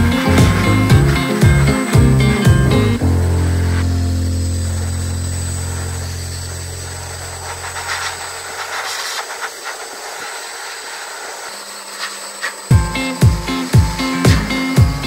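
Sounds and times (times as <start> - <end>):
blower dryer hissing: 0.0 - 15.0
low held music note: 3.0 - 8.0.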